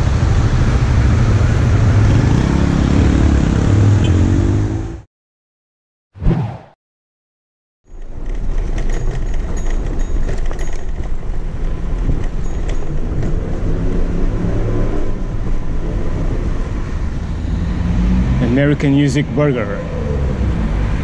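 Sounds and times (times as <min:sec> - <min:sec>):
bike rattling over cobblestones: 0:07.9 - 0:15.6.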